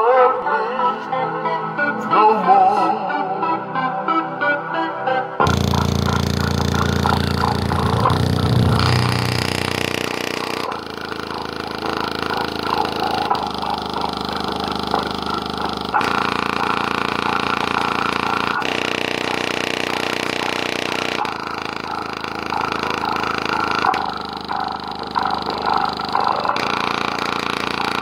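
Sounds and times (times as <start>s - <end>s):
subwoofer buzzing rattle: 5.4s - 28.0s.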